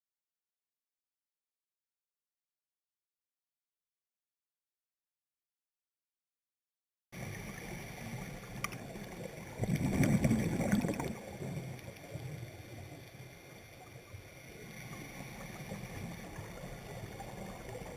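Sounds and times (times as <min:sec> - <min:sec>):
scuba exhaust bubbles gurgling: 0:07.2 - 0:17.9
steady underwater hiss: 0:07.2 - 0:17.9.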